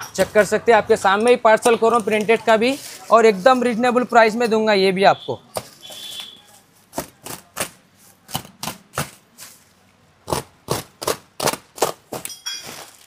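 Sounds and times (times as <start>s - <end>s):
box cutter slicing plastic sack: 10.3s - 13.0s.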